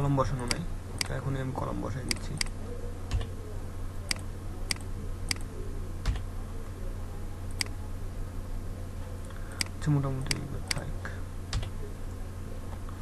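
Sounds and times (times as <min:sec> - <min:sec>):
steady low hum: 0:00.0 - 0:13.0
mouse and keyboard clicks: 0:04.1 - 0:06.2, 0:07.5 - 0:07.7.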